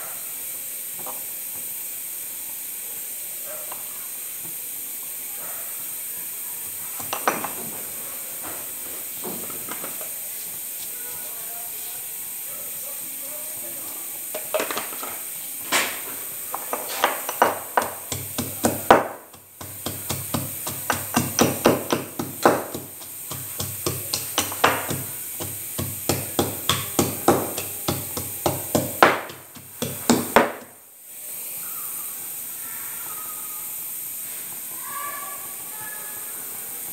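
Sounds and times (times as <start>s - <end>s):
pestle pounding in stone mortar: 16.6s - 30.7s.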